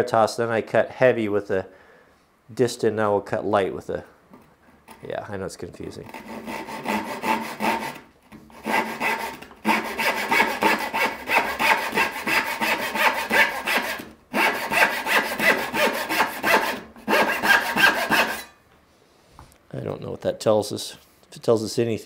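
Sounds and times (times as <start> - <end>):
hand saw cutting wood: 6.0 - 18.6.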